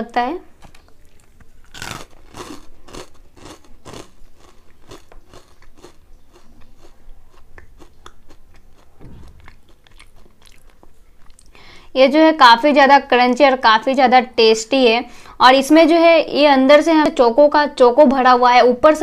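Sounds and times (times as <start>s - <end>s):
crunchy cereal chewing: 0.9s - 11.6s.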